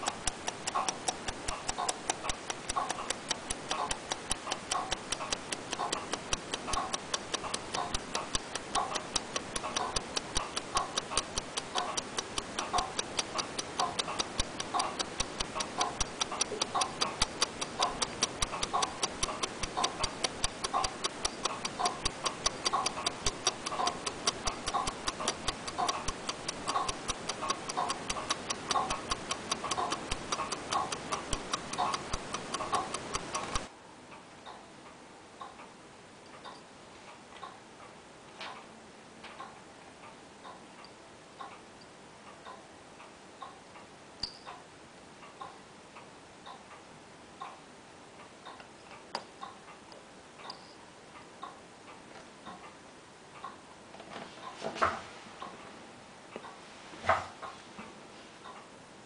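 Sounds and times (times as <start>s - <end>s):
clock ticking rapidly: 0.0s - 33.7s.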